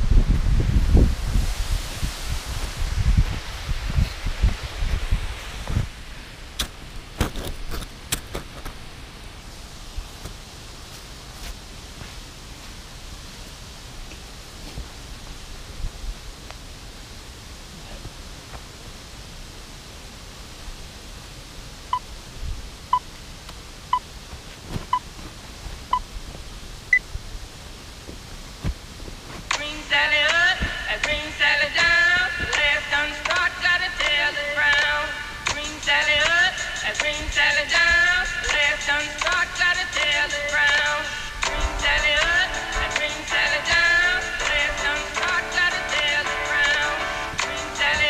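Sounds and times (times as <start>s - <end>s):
faint steady hiss: 0.0s - 48.0s
footsteps crunching in snow: 9.9s - 13.6s, 24.1s - 26.8s, 27.5s - 33.1s.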